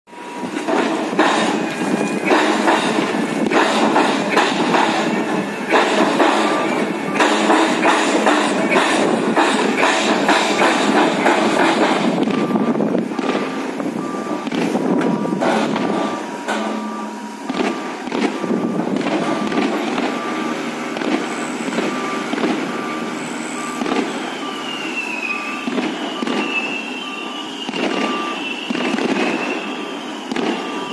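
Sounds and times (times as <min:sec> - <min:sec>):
drilling rig engine and hydraulics: 0:00.1 - 0:30.9
warning beeper: 0:00.1 - 0:30.9
wavering high squeal: 0:21.3 - 0:30.9.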